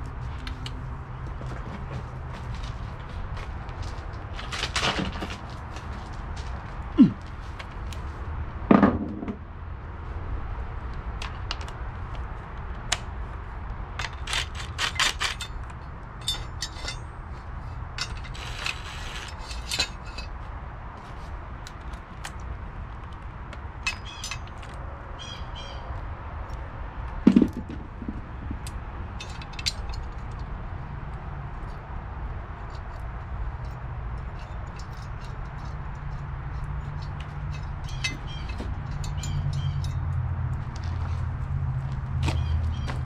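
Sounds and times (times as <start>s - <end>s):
metal clinks and knocks: 14.0s - 20.4s, 23.8s - 24.8s, 27.2s - 30.5s, 32.6s - 41.2s
heavy metal clanks: 27.3s - 30.1s.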